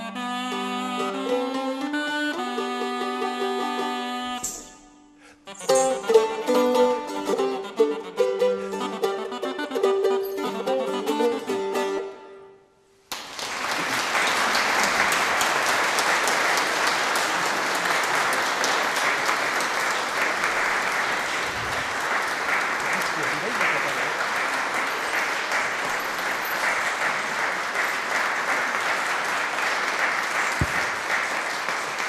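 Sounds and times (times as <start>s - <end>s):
recorder and lute playing: 0.0s - 12.9s, 17.2s - 30.0s
audience applause: 13.1s - 32.0s.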